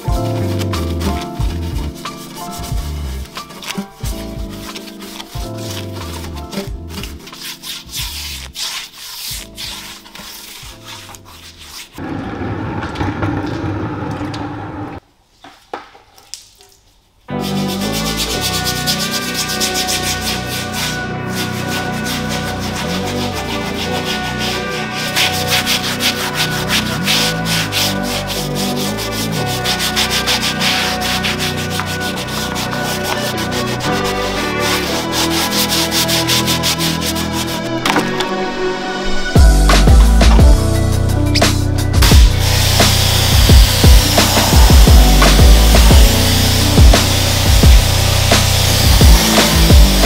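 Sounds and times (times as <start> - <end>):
background music with beat: 0.0 - 8.5, 17.3 - 50.0
brush scrubbing wet tire: 0.1 - 12.4, 17.9 - 37.7, 42.0 - 50.0.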